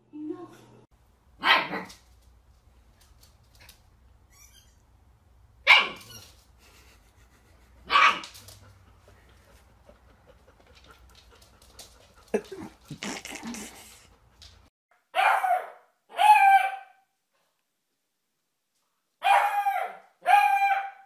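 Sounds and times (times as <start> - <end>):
puppy barking: 1.4 - 2.0, 5.6 - 6.2, 7.8 - 8.7, 15.1 - 17.0, 19.2 - 21.0.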